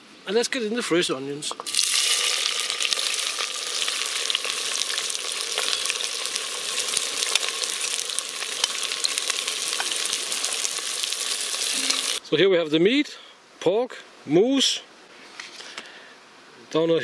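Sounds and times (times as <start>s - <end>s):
onions sizzling in hot oil: 1.6s - 12.2s.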